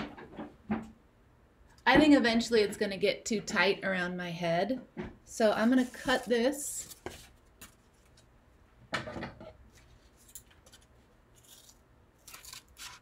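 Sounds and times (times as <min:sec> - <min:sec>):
scissors cutting cardboard: 0:11.4 - 0:13.0.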